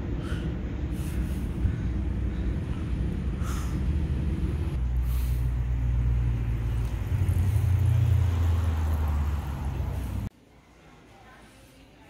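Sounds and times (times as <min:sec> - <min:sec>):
car driving past slowly: 0:03.4 - 0:10.3.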